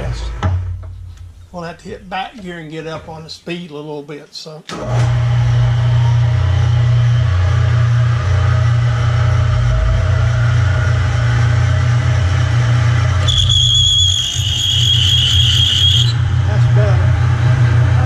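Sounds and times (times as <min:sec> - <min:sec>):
drill bit squealing: 0:13.2 - 0:16.2.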